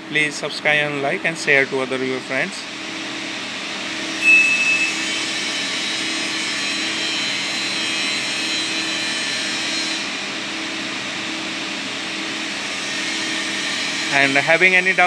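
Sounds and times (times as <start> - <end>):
machinery whir and hiss: 0.1 - 11.4
short high beep: 4.2 - 5.2.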